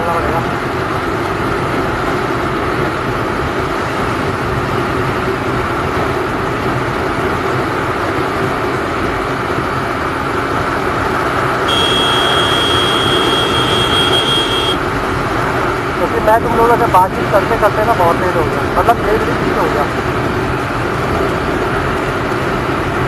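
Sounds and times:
motorcycle engine hum: 0.0 - 23.0
wind and road noise: 0.0 - 23.0
high-pitched tone: 11.7 - 14.8.

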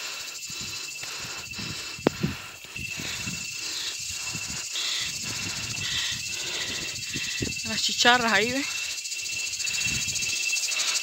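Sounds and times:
cicadas buzzing: 0.0 - 11.0.

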